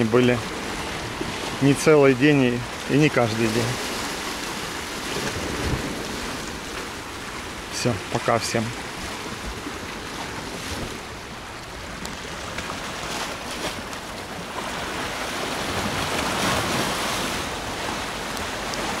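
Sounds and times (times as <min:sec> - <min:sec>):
surf washing against rocks: 0:00.0 - 0:19.0.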